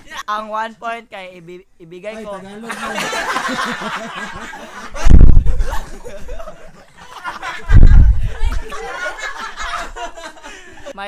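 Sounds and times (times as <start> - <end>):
people snickering and laughing: 2.5 - 11.0
microphone bumped thumps: 5.0 - 5.8, 7.6 - 8.7.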